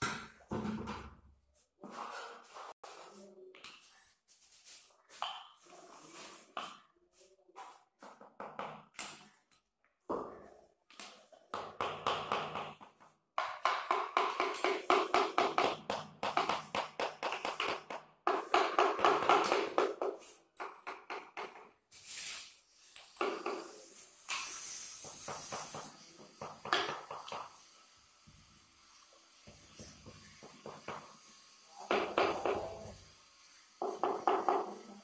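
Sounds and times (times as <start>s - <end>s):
hammer tapping on marble: 11.0s - 21.7s, 25.0s - 27.6s, 31.9s - 33.0s, 33.8s - 34.8s.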